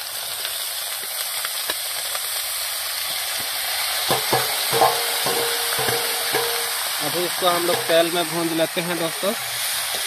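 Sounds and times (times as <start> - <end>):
food sizzling in hot oil: 0.0 - 10.0
metal spoon knocking and scraping plate: 4.1 - 6.7.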